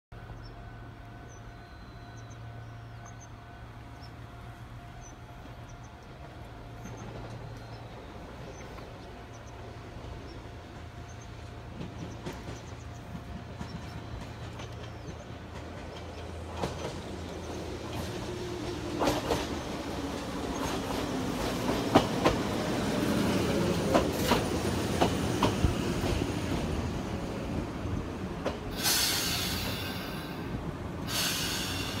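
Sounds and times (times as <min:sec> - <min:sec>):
train wheels clicking over rail joints: 0:06.8 - 0:27.2, 0:28.0 - 0:32.0
air brake hiss: 0:28.7 - 0:32.0.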